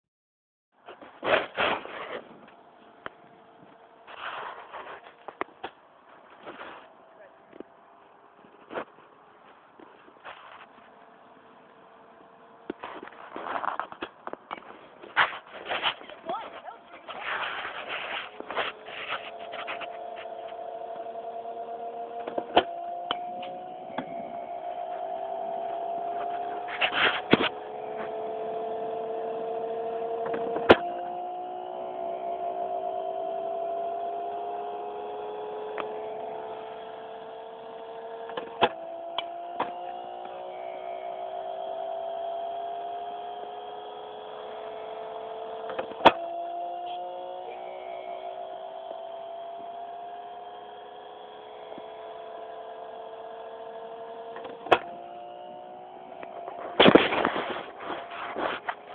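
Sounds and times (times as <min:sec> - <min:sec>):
pitching machine motor whine: 0:01.6 - 0:58.9.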